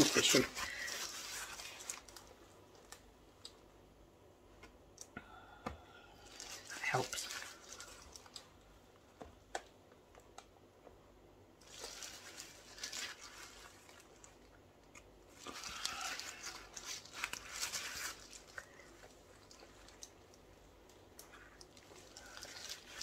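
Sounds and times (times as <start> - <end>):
paper tissue crinkling: 0.0 - 3.2, 6.1 - 8.6, 11.6 - 23.0
small clicks and crackles: 0.1 - 3.7, 6.3 - 10.6, 11.6 - 23.0.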